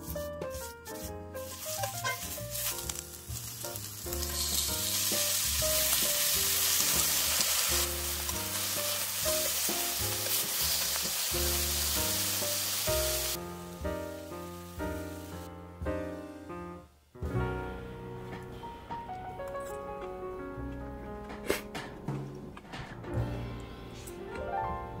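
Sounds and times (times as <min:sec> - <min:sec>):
soft background music: 0:00.0 - 0:25.0
beef sizzling in a skillet: 0:01.4 - 0:15.5.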